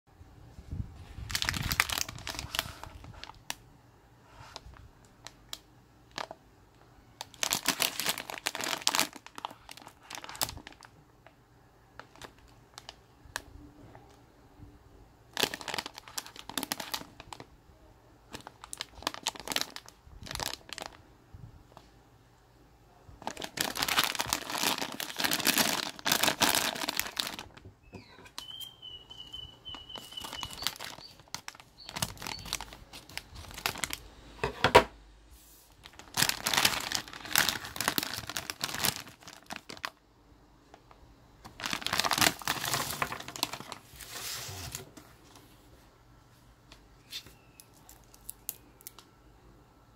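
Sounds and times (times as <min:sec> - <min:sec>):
plastic wrapping crinkling: 0:01.1 - 0:03.6, 0:04.4 - 0:06.4, 0:07.2 - 0:11.0, 0:12.0 - 0:13.4, 0:15.3 - 0:17.5, 0:18.3 - 0:21.0, 0:23.2 - 0:34.0, 0:35.6 - 0:40.0, 0:40.7 - 0:45.4, 0:47.0 - 0:49.1
high whistle: 0:27.8 - 0:31.1.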